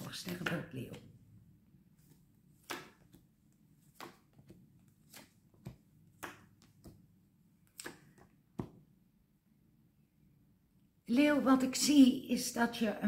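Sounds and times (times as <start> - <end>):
cards shuffled by hand: 2.0 - 7.0.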